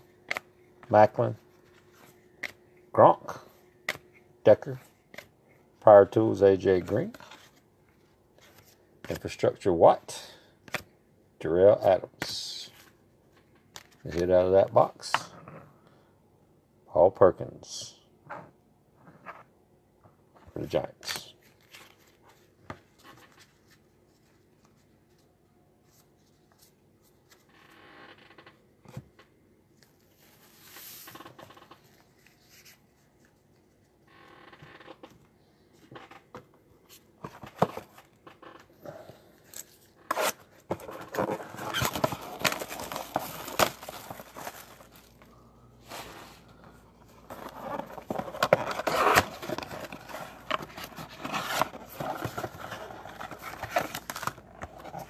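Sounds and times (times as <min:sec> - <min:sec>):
cards and cardboard shuffling: 0:03.3 - 0:05.4, 0:06.6 - 0:09.4, 0:39.4 - 0:55.0
packaging tearing: 0:40.1 - 0:45.1.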